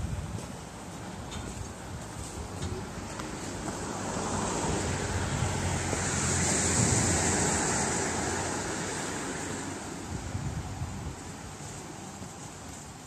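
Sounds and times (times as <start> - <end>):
car passing: 2.8 - 11.8.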